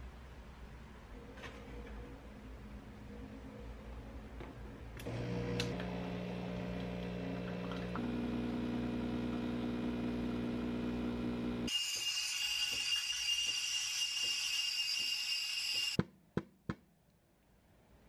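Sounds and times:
espresso machine pump humming: 5.0s - 14.4s.

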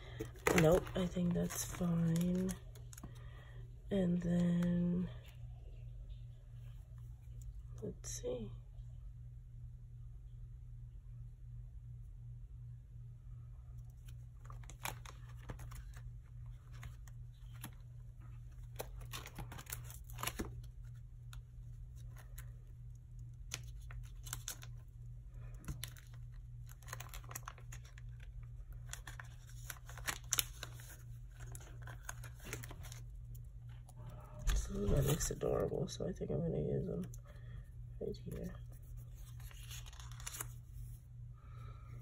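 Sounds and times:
low steady hum: 0.0s - 42.0s
paper sheets rustling: 28.9s - 33.0s, 34.4s - 35.7s, 38.3s - 41.0s.

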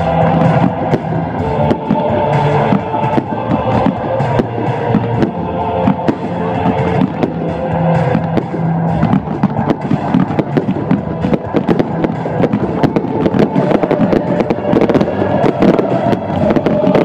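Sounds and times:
fireworks bursting and crackling: 0.0s - 17.0s.

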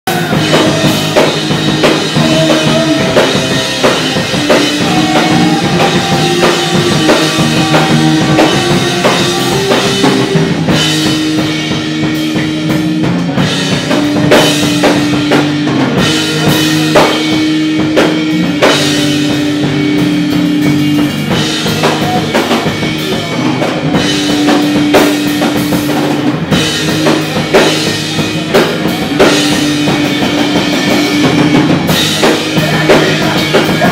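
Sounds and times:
hardcore band playing live: 0.0s - 33.9s.

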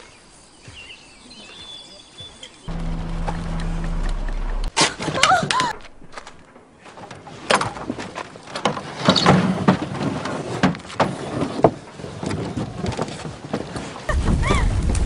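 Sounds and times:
truck rumble: 2.7s - 6.4s.

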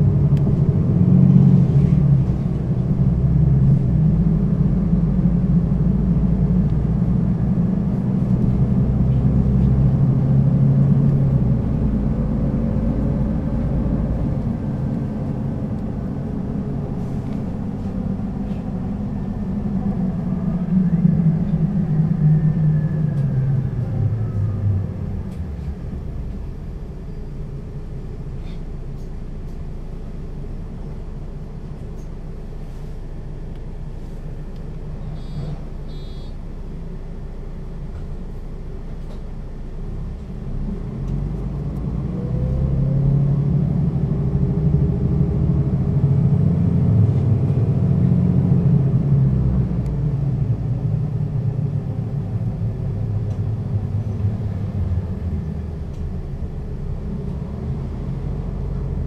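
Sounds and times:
bus engine: 0.0s - 59.0s
short high beeps: 35.2s - 36.4s.

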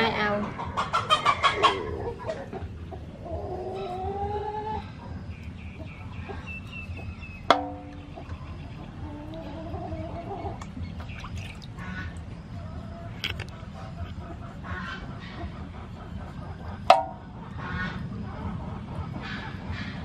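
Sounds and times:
chickens clucking: 0.0s - 20.0s.

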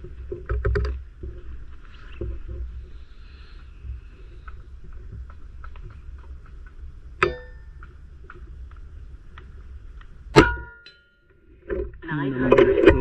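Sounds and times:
faint ticks: 0.4s - 10.2s
metallic ring: 7.2s - 7.7s, 10.4s - 11.3s.

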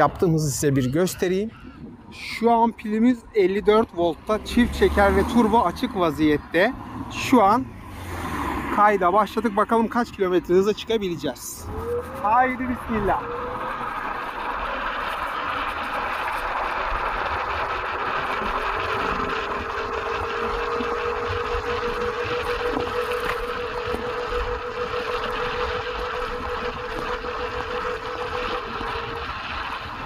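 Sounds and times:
electric scooter motor whine: 0.0s - 30.0s
wind rushing over microphone: 0.0s - 30.0s.

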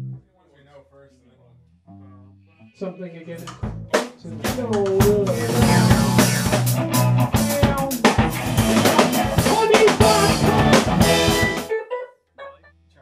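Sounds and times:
drum kit playing steady beat: 3.4s - 11.7s.

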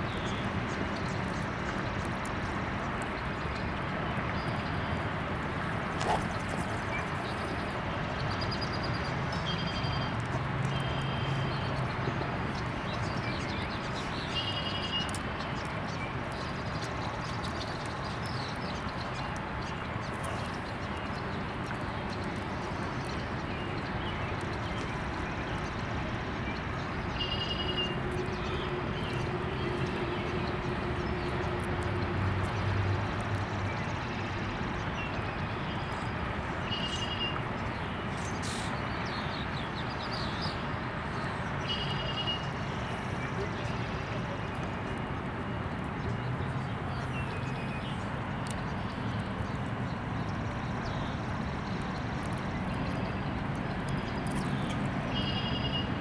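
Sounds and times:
bird chirping: 54.0s - 55.9s.

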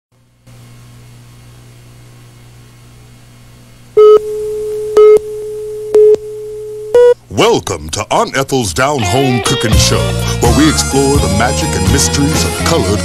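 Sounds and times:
low hum: 0.2s - 7.4s
countdown beeps: 6.9s - 7.2s.

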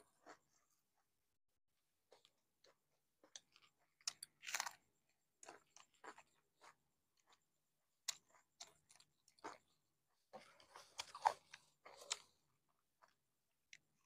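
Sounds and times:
chewing: 5.4s - 14.0s.

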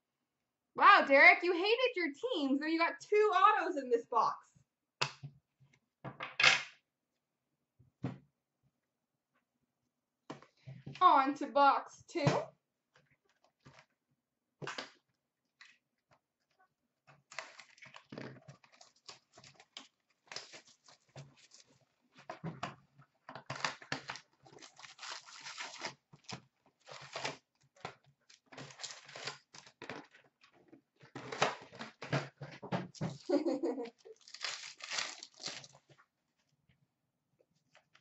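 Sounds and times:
plastic shrink-wrap crinkling and tearing: 17.3s - 21.8s, 23.5s - 27.5s, 28.3s - 29.9s, 34.0s - 35.9s
card packs rustling: 23.5s - 27.4s, 28.4s - 30.2s, 34.2s - 36.0s.

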